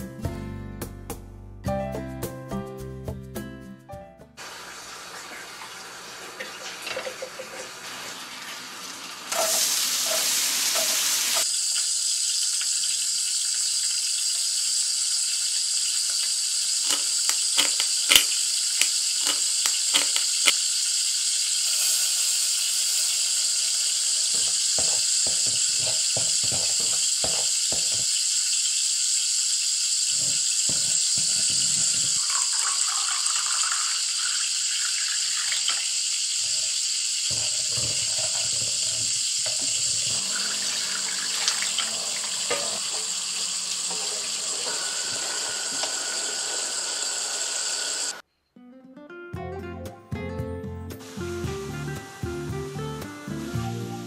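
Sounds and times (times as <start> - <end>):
vegetables sizzling in a frying pan: 4.4 - 6.6, 7.7 - 48.2, 51.0 - 54.0
liquid poured into pan: 16.1 - 29.4, 30.0 - 46.9
stirring and scraping: 16.8 - 20.6, 36.4 - 45.2
utensil taps: 24.3 - 28.1.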